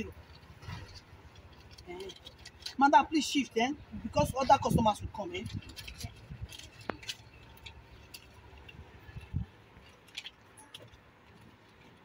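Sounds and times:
bag clicks and rustles: 0.1 - 2.9, 4.5 - 12.0.

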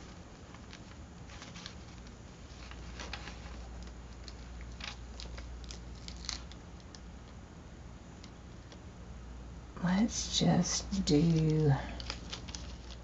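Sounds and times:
paper rustling and crinkling: 0.0 - 7.0, 11.0 - 13.0
low room hum: 0.0 - 13.0.

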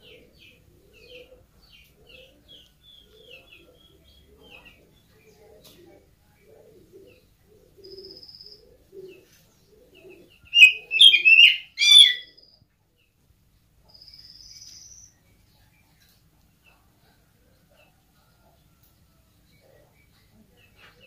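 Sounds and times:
buzzy bird trill: 10.5 - 12.4
bird singing whistles: 10.6 - 12.3.

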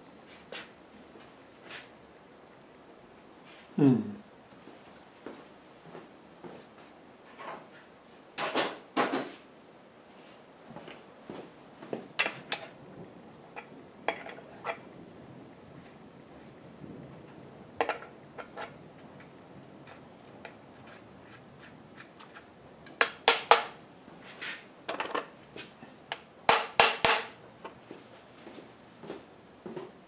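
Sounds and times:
steel tools clinking on metal: 26.1 - 27.4.

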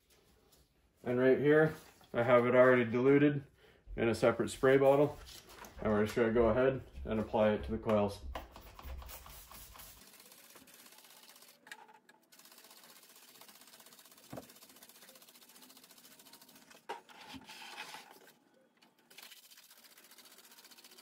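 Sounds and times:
short hissing sprays: 9.0 - 11.6.

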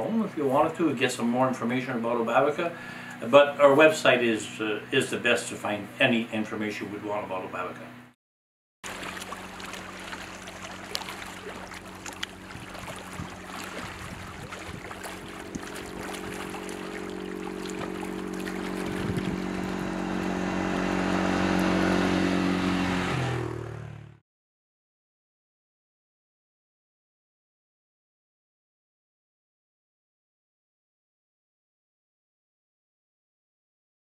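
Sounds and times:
water lapping at rocky shore: 8.8 - 22.0
quad bike engine passing: 8.9 - 24.2.

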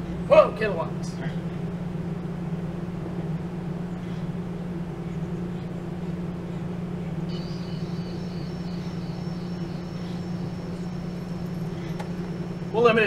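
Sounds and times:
high wavering whine: 0.0 - 13.0
low hum: 0.0 - 13.0.

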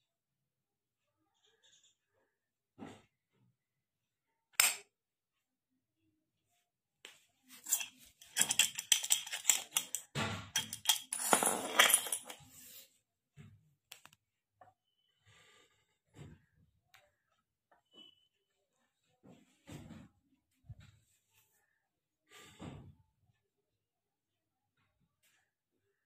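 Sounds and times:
padlocks and keys clinking: 7.6 - 12.4.

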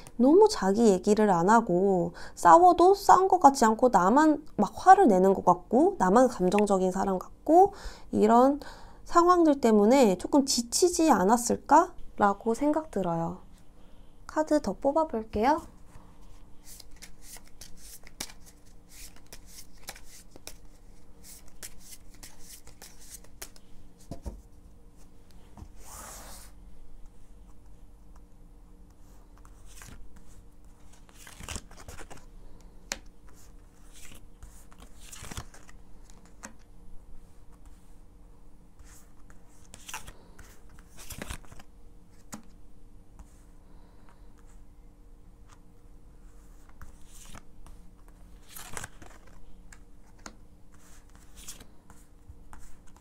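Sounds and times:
cards sliding: 16.6 - 23.6, 48.4 - 49.4
cards flicking and snapping: 16.8 - 20.7.

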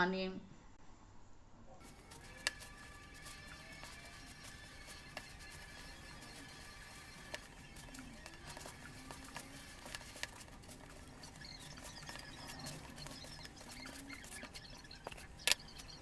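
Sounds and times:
dough crumbling and rustling: 1.8 - 16.0
soft clicks: 13.0 - 16.0.

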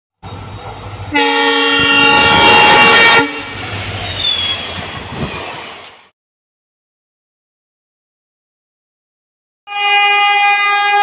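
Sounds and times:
diesel locomotive passing: 0.2 - 6.1
train horn: 1.1 - 3.6, 9.7 - 11.0.

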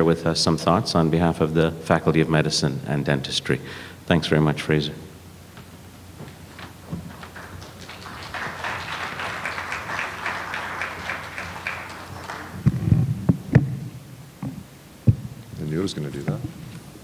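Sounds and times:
audience applause: 6.6 - 12.8
microphone handling thumps and knocks: 12.6 - 15.6.

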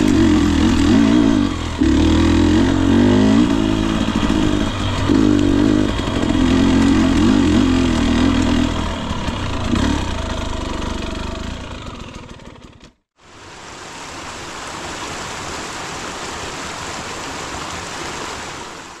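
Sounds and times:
two-stroke engine at low revs: 0.0 - 13.1.

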